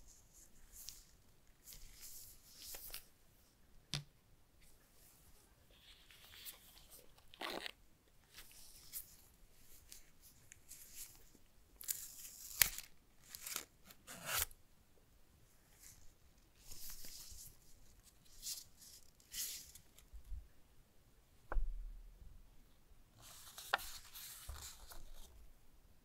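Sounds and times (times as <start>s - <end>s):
paper rustling and scraping: 23.2s - 25.3s.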